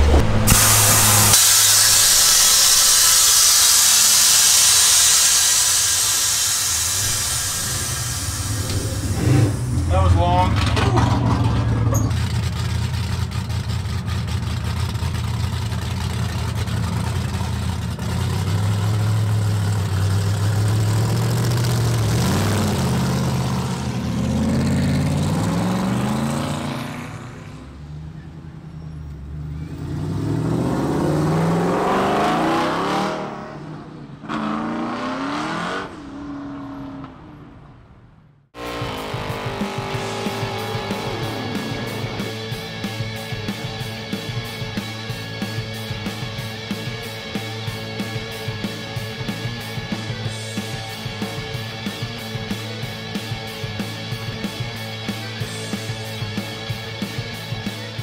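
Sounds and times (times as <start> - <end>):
car engine revving: 0.0 - 58.0
music: 38.6 - 58.0.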